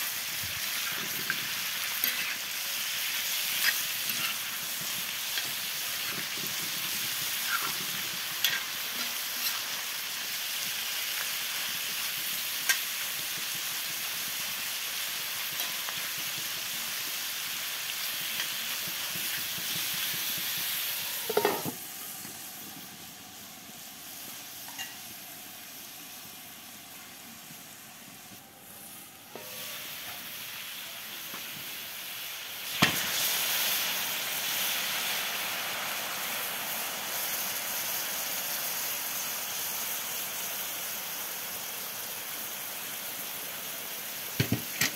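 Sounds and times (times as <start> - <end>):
meat sizzling on griddle: 0.0 - 44.9
water hissing into steam: 0.0 - 44.9
metal spoon scraping iron: 2.0 - 2.4.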